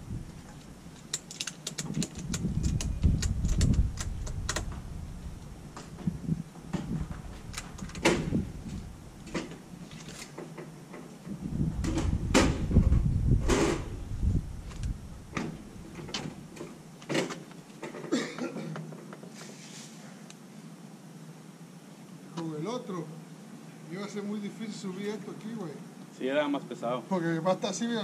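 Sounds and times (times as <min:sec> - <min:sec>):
ratchet strap clicking: 0:01.0 - 0:04.8.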